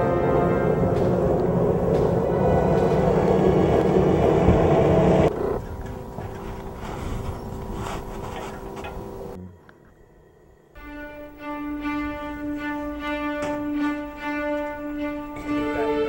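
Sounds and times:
snowmobile engines running: 0:00.0 - 0:09.4.

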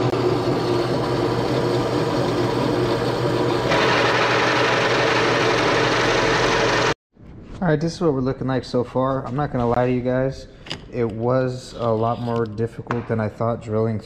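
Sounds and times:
electric drill boring through steel: 0:00.0 - 0:07.0.

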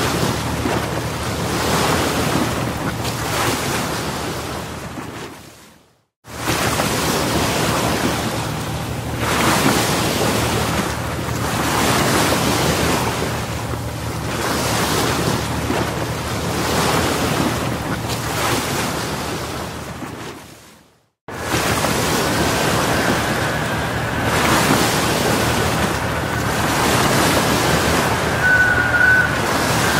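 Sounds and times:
waves washing: 0:00.0 - 0:29.9
wind buffeting microphone: 0:21.3 - 0:29.9.

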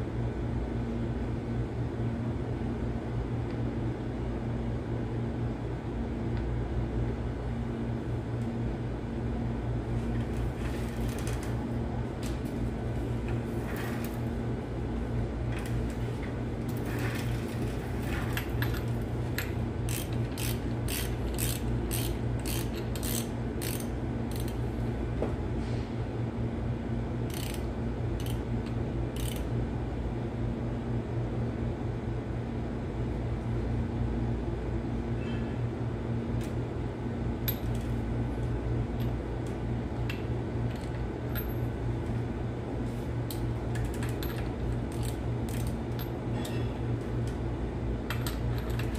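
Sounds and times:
ratchet wrench clicking: 0:19.9 - 0:24.6, 0:27.3 - 0:28.4, 0:29.2 - 0:29.5, 0:44.3 - 0:46.0.

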